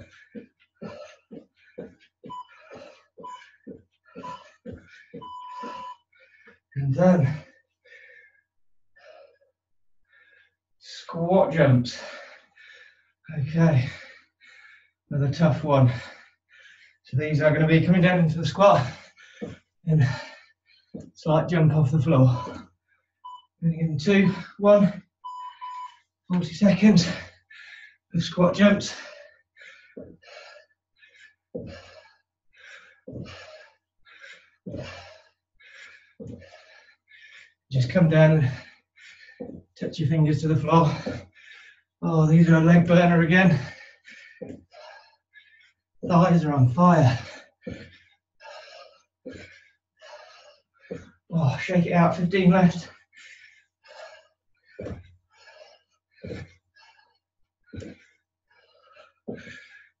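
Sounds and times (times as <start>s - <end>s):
hard quick breathing: 0.0s - 6.7s, 7.4s - 9.5s, 11.9s - 13.2s, 13.8s - 15.0s, 15.9s - 17.0s, 18.8s - 21.2s, 26.9s - 28.1s, 28.7s - 39.8s, 40.8s - 42.0s, 43.5s - 46.1s, 47.1s - 51.3s, 52.7s - 60.0s.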